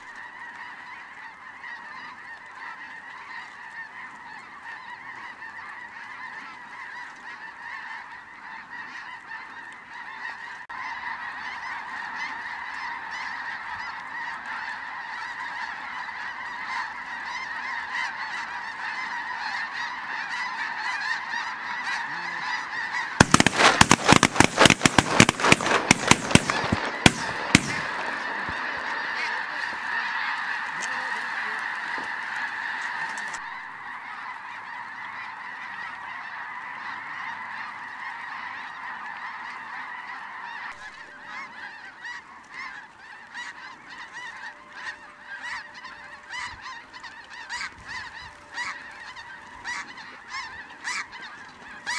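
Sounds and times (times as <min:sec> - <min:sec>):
geese honking: 0:00.0 - 0:51.9
rapid sharp cracks: 0:23.1 - 0:31.0.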